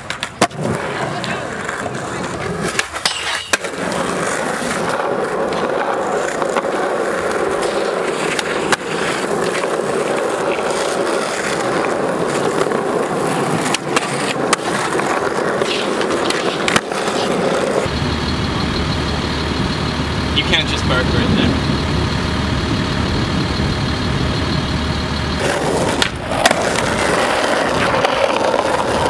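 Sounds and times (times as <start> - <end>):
skateboard clacks: 0.0 - 17.9, 25.4 - 29.0
skateboard wheels rolling on concrete: 0.0 - 29.0
engine idling: 17.9 - 26.2.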